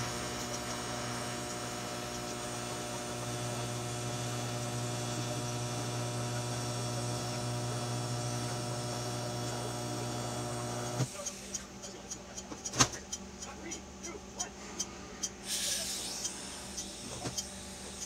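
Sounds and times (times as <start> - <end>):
electric welding arc buzzing: 0.0 - 11.1.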